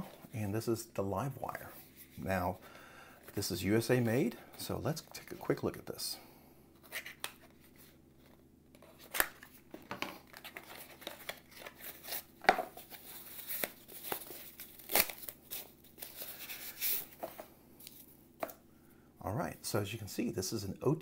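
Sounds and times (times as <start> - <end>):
paper rustling and crinkling: 6.8 - 18.1.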